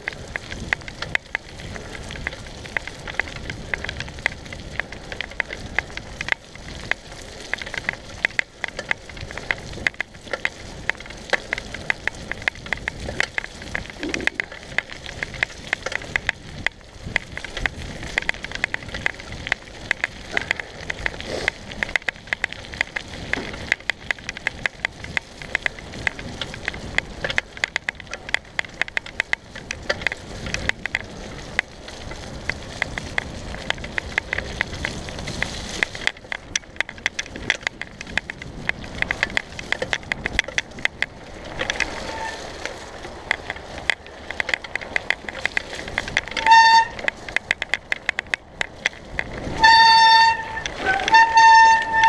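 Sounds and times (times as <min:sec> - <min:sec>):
bike clattering over bumps: 0:00.0 - 0:52.0
bike tyres rushing: 0:00.0 - 0:52.0
bike brakes squealing: 0:41.8 - 0:42.6, 0:46.3 - 0:47.1, 0:49.5 - 0:52.0.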